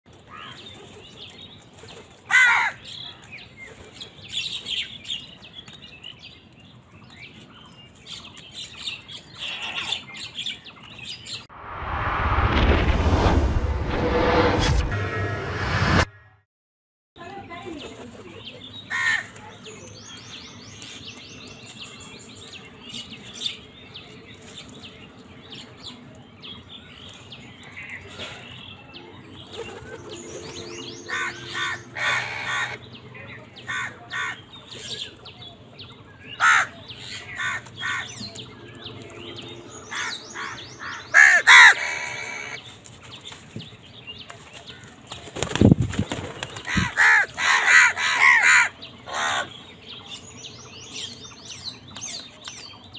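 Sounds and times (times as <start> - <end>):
small birds chirping: 0.1 - 11.5, 17.2 - 52.9
crows cawing: 2.3 - 2.8, 18.9 - 19.3, 31.1 - 32.8, 33.6 - 34.4, 36.4 - 38.2, 39.9 - 42.6, 46.7 - 49.5
low thump: 11.6 - 16.1.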